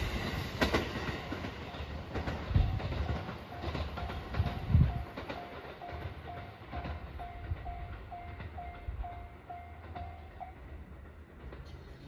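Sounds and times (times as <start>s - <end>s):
train rumbling: 0.0s - 12.0s
train wheel clicks: 0.0s - 12.0s
level crossing warning bell: 1.6s - 10.8s.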